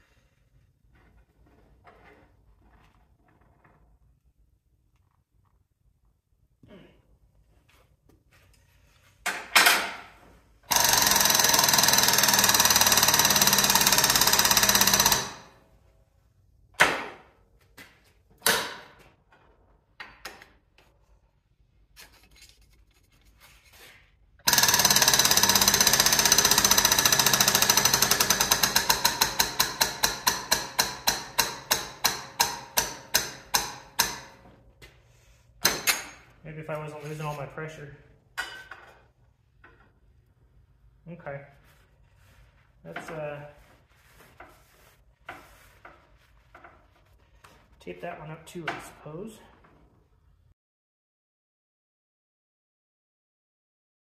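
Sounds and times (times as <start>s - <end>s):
air motor pump running: 10.7s - 15.4s, 24.4s - 29.2s.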